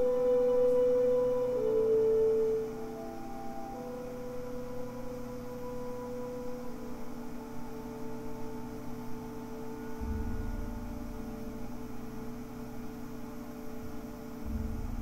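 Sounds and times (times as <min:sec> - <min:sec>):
droning music through speaker: 0:00.0 - 0:15.0
deep bass tone: 0:10.0 - 0:12.8, 0:13.8 - 0:15.0.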